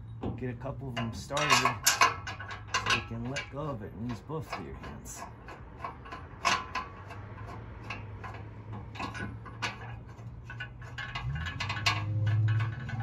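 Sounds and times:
metallic clicks of bolts: 0:00.9 - 0:13.0.

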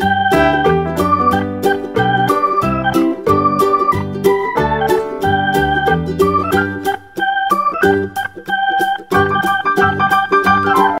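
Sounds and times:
electronic keyboard music with beat: 0:00.0 - 0:11.0.

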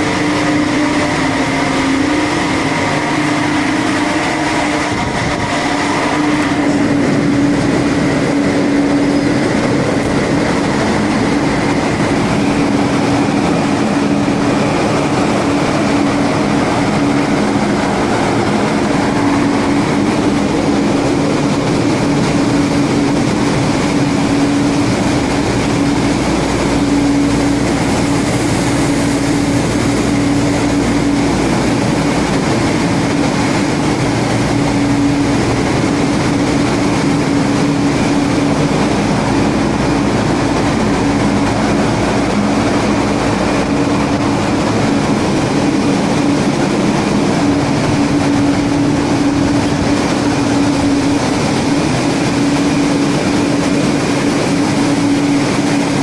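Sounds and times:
engine room machinery drone: 0:00.0 - 0:56.0
steady hum: 0:00.0 - 0:56.0.

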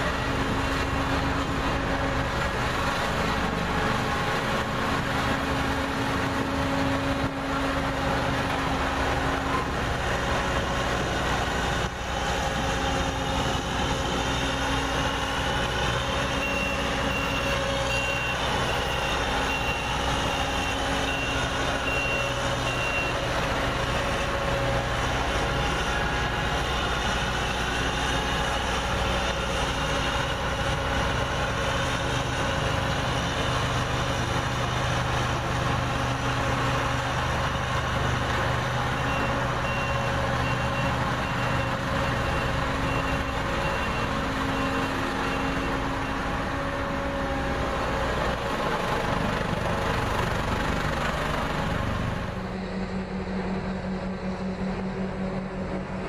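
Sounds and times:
diesel engine running: 0:00.0 - 0:56.0
back-up alarm beeping: 0:16.4 - 0:23.2, 0:39.0 - 0:46.3.

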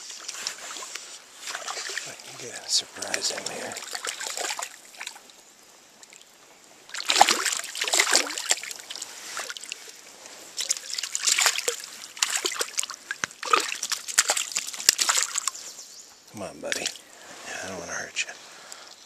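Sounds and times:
water splashing from thrashing fish: 0:01.5 - 0:02.3, 0:03.0 - 0:05.2, 0:06.9 - 0:09.8, 0:10.6 - 0:15.6.

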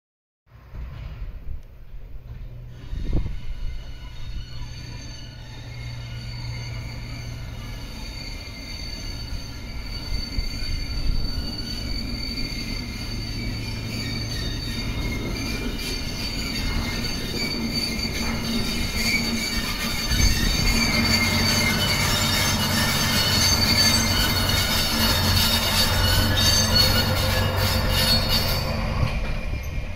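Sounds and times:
locomotive engine drone: 0:00.6 - 0:29.9
wheel squeal on rails: 0:02.2 - 0:29.9.

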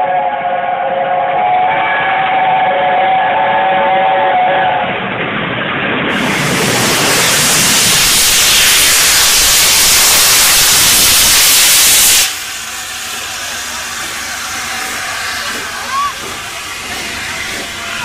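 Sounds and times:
steam locomotive venting steam: 0:06.0 - 0:18.0.

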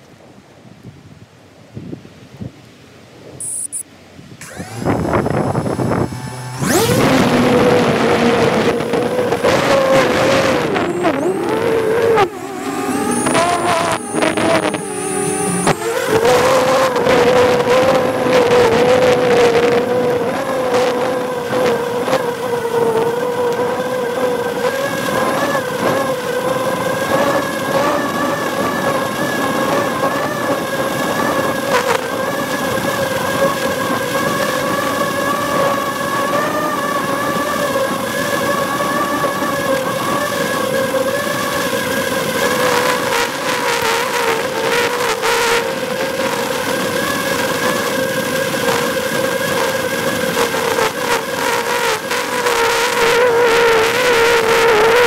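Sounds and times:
drone propellers whining: 0:03.4 - 0:03.8, 0:04.4 - 0:55.0
rushing air: 0:04.4 - 0:09.0.

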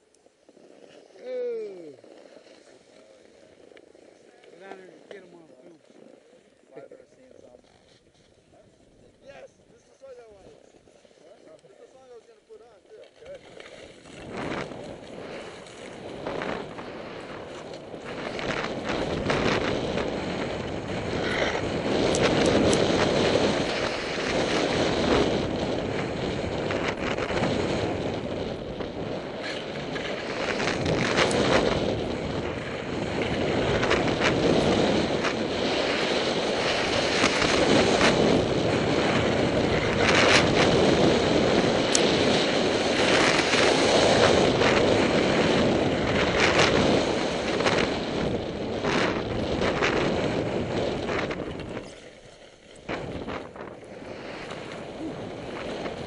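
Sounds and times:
snowboard edges scraping snow: 0:00.0 - 0:56.0
wind rushing over microphone: 0:13.4 - 0:56.0.

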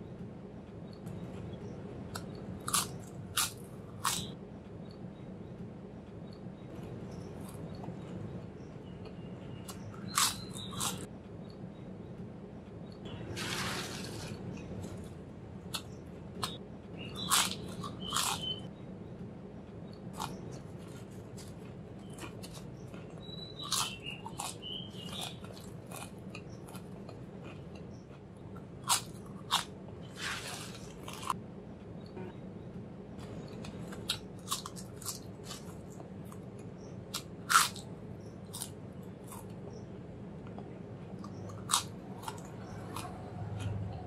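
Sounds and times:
potato chips crunching: 0:02.2 - 0:04.3, 0:09.6 - 0:11.0, 0:13.3 - 0:18.7, 0:20.2 - 0:27.7, 0:28.6 - 0:31.4, 0:33.2 - 0:36.4, 0:37.1 - 0:39.6, 0:41.2 - 0:43.8
rustle of chip pile: 0:13.3 - 0:14.4, 0:30.1 - 0:31.2.

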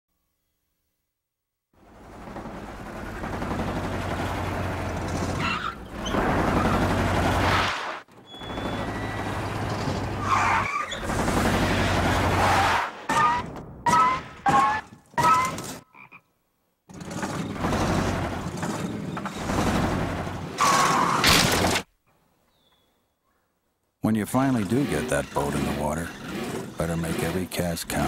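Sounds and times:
squeaky rising tone bursts: 0:08.2 - 0:11.1
car engine revving: 0:16.9 - 0:21.2, 0:24.4 - 0:28.0.

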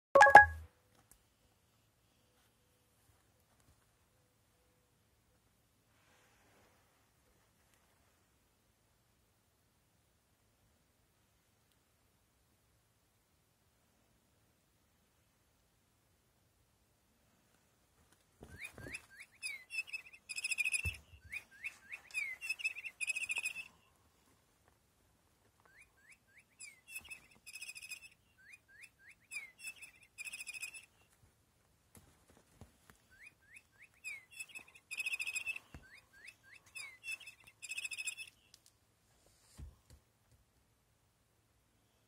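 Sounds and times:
electronic bird chirping toy: 0:00.2 - 0:00.6, 0:18.5 - 0:23.8, 0:25.7 - 0:31.0, 0:33.2 - 0:38.5.

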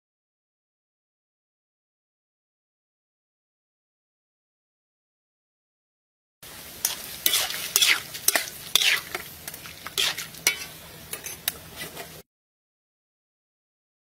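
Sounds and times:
food sizzling in a pan: 0:06.4 - 0:12.3
metal ladle scraping a pan: 0:06.8 - 0:12.2.

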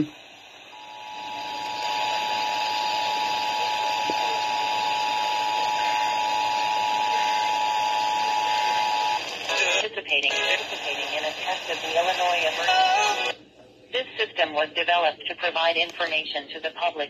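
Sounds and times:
radio hiss: 0:00.0 - 0:13.4.

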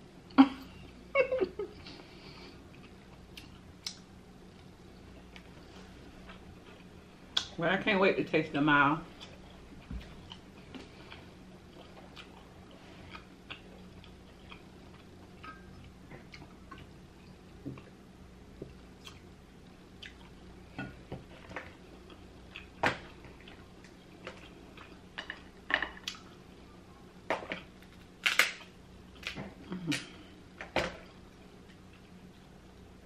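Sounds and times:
faint hum: 0:00.0 - 0:33.0.

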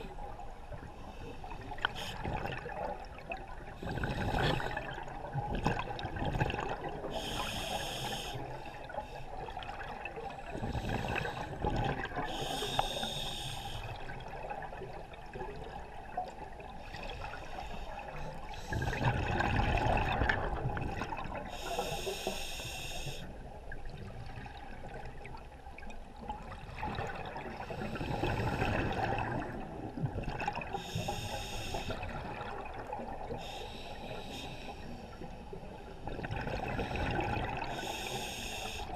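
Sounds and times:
regulator hissing inhalations: 0:07.2 - 0:08.5, 0:12.3 - 0:14.0, 0:21.5 - 0:23.3, 0:30.8 - 0:32.0, 0:33.4 - 0:35.0, 0:37.7 - 0:38.9
exhaled bubbles rushing: 0:18.7 - 0:21.4, 0:26.4 - 0:30.7.

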